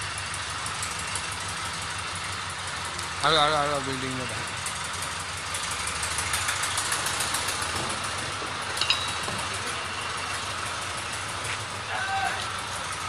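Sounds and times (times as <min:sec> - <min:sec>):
crane engine idling: 0:00.0 - 0:13.0
high metallic clink: 0:06.4 - 0:10.3.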